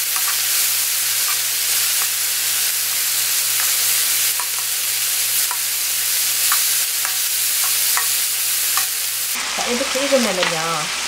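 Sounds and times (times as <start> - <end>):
meat sizzling on a griddle: 0.0 - 11.0
metal tongs stirring: 0.1 - 5.7, 6.4 - 9.1.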